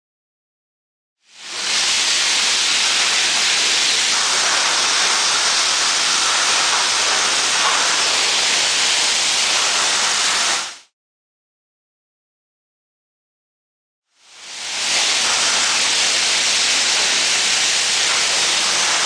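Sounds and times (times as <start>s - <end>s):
hissing conveyor machinery: 1.4s - 10.8s, 14.4s - 19.0s.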